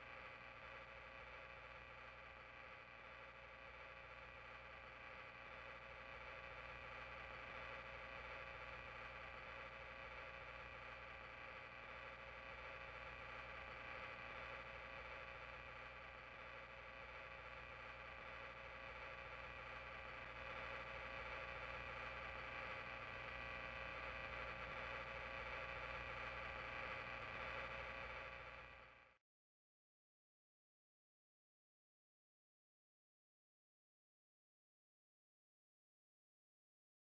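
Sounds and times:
faint buzzing hiss with tones: 0.0 - 29.2.

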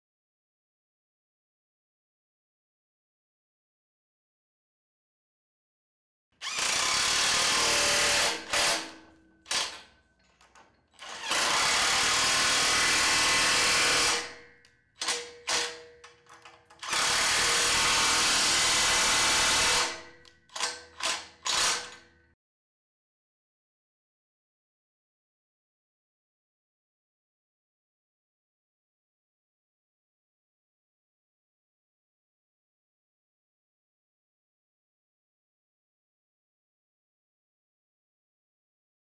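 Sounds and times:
impact wrench tightening nuts: 6.4 - 12.7, 19.7 - 22.0.

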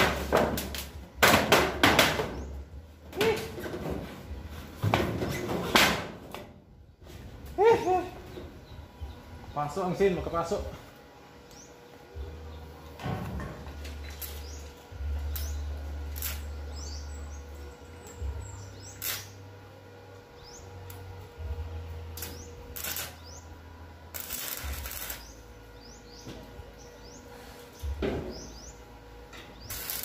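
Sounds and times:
low hum: 0.0 - 30.0
birds chirping: 7.6 - 13.0, 13.8 - 19.2, 20.4 - 20.8, 22.2 - 23.6, 24.6 - 30.0
welding arc crackle: 14.0 - 16.7, 18.8 - 19.4, 22.1 - 23.4, 24.1 - 25.4, 29.6 - 30.0.

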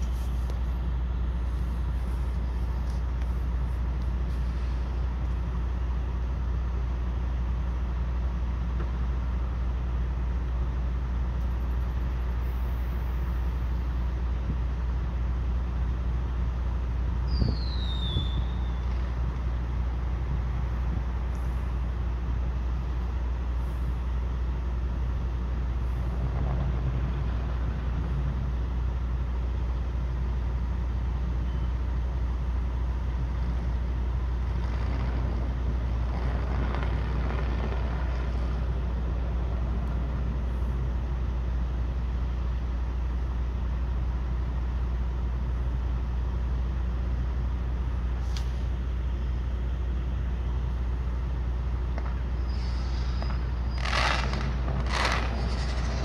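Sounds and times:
diesel truck engine idling: 0.0 - 56.0
sharp crack: 51.9 - 56.0
hiss: 52.3 - 56.0.

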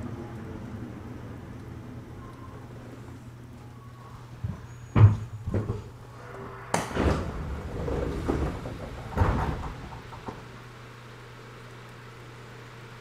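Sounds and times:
low hum of stopped train: 0.0 - 13.0
train doors knocking and thudding: 4.5 - 5.9, 6.8 - 10.6.

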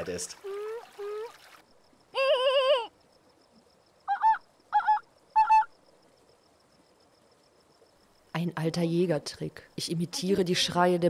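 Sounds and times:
person imitating animal calls: 0.4 - 1.3, 2.2 - 2.9.

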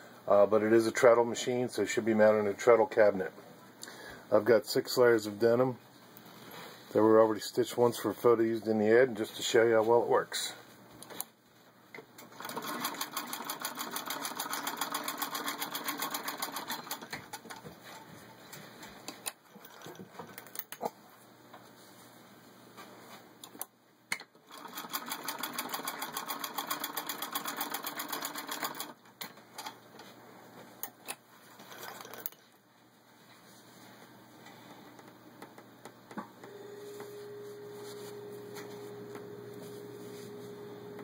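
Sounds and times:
sewing machine clatter: 12.2 - 18.0, 19.4 - 20.6, 24.4 - 29.0, 31.5 - 32.4.

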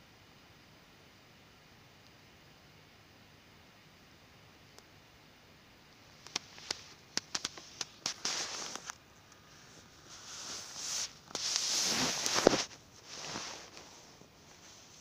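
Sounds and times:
stones rustling on cloth: 6.3 - 15.0.

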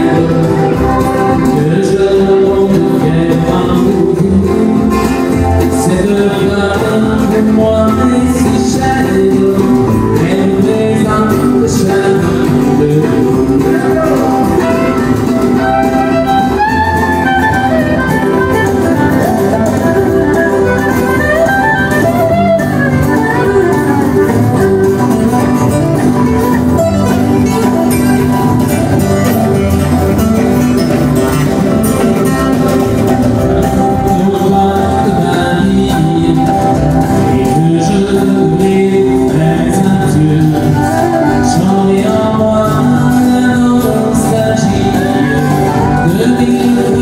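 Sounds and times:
acoustic guitars strumming: 0.0 - 47.0
fiddle playing melody: 13.6 - 35.4.

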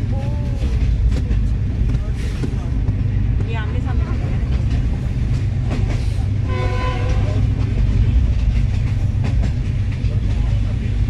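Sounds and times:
rail clacks: 0.0 - 11.0
train rumbling: 0.0 - 11.0
train horn: 6.4 - 7.4.

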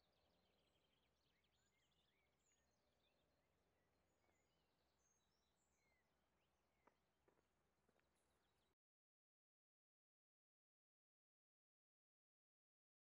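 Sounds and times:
faint birdsong: 0.0 - 8.8.

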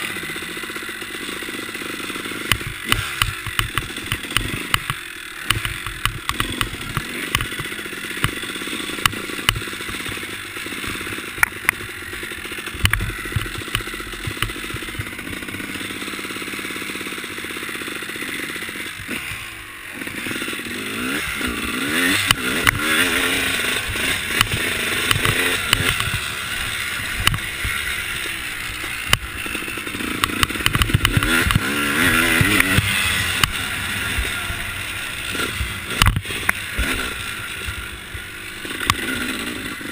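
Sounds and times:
dirt bike engine revving: 0.0 - 39.9
bike clattering over dirt: 21.1 - 39.9.

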